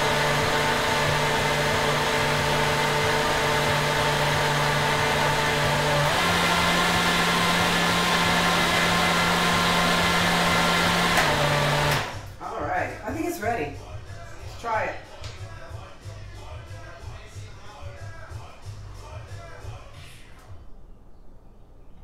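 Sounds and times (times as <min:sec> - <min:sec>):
blender motor running: 0:00.0 - 0:12.2.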